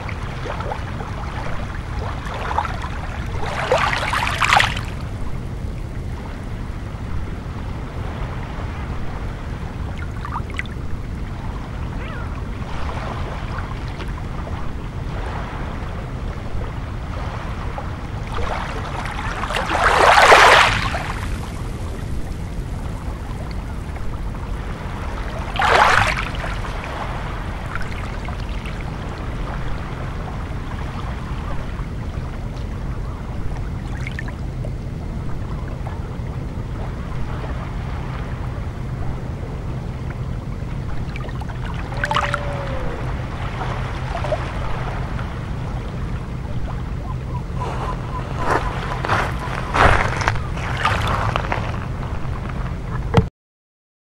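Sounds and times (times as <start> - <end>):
waves washing over pebbles: 0.0 - 5.2, 15.0 - 31.6, 41.0 - 46.4, 47.9 - 52.8
low rumble: 0.0 - 53.3.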